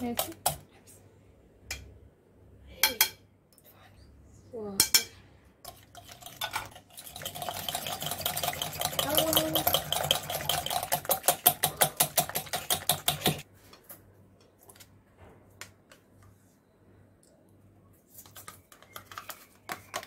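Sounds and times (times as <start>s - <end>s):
whisk clinking against glass bowl: 5.7s - 13.4s.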